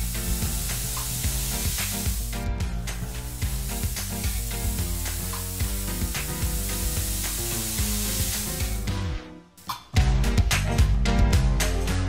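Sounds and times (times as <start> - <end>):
food sizzling in a frying pan: 0.0 - 8.9
background music: 0.0 - 12.0.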